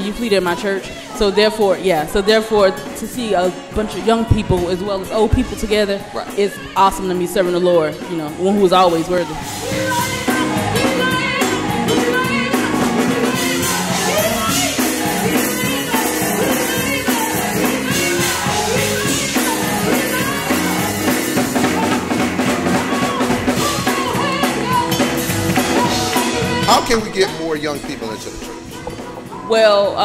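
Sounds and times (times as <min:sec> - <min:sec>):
women singing backing vocals: 0:00.0 - 0:27.0, 0:28.4 - 0:30.0
woman singing lead: 0:00.0 - 0:27.2, 0:28.3 - 0:30.0
drum kit with cymbals: 0:00.0 - 0:30.0
bass guitar: 0:09.4 - 0:29.5.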